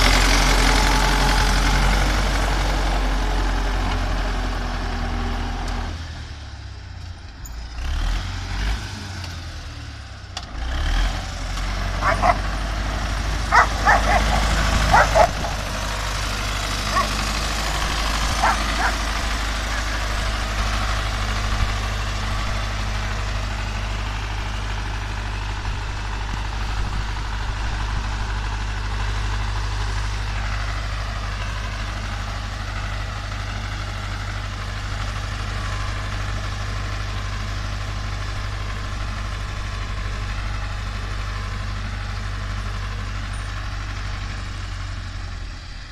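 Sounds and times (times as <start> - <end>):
tractor engine running: 0.0 - 45.9
dog barking: 12.0 - 12.4, 13.5 - 15.6, 16.9 - 17.2, 18.4 - 19.0.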